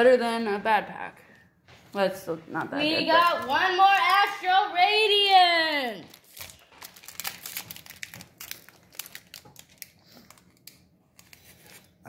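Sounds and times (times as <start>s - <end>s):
foil wrapper crinkling: 3.1s - 4.0s, 6.0s - 12.0s.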